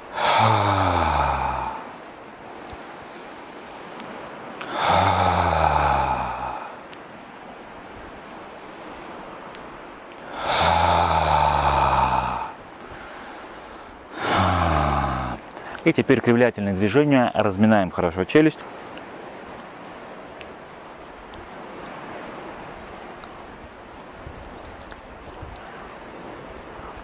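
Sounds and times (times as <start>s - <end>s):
man sighing: 0.0s - 2.0s, 4.6s - 6.8s, 10.2s - 13.4s, 14.1s - 15.7s.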